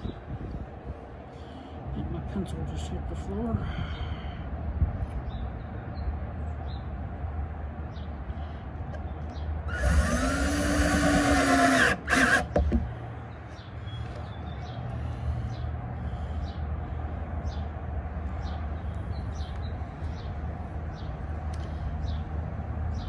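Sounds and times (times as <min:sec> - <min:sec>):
cordless drill driving screw: 0:09.7 - 0:12.9.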